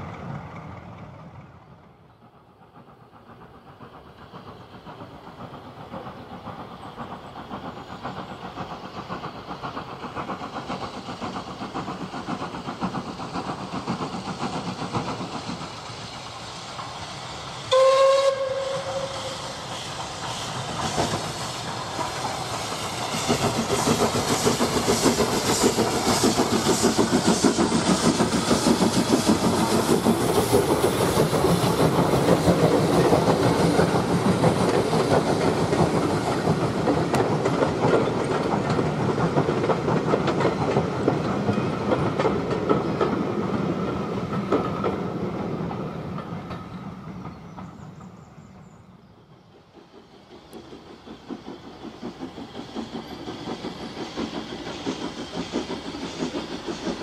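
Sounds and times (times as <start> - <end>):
steam train exhaust beats: 0.0 - 57.0
train wheels on rails: 0.0 - 57.0
steam whistle: 17.7 - 19.7.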